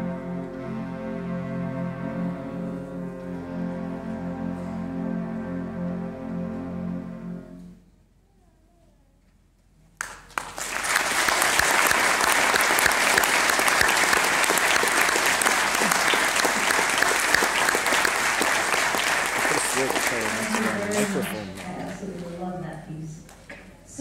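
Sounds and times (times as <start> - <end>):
audience applause: 10.0 - 21.9
concert band held chord: 11.2 - 21.6.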